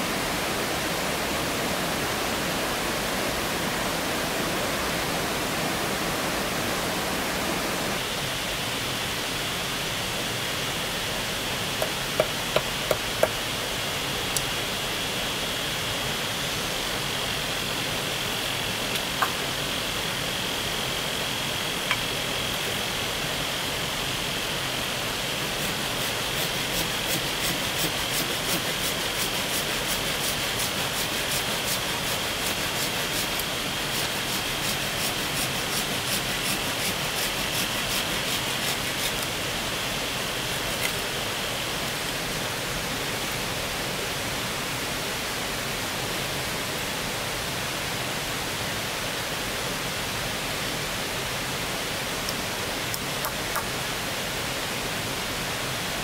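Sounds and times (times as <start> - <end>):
rushing forest stream: 0.0 - 56.0.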